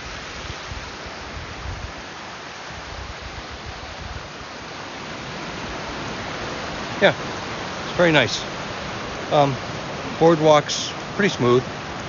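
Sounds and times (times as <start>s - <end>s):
brook rushing over stones: 4.3s - 12.0s.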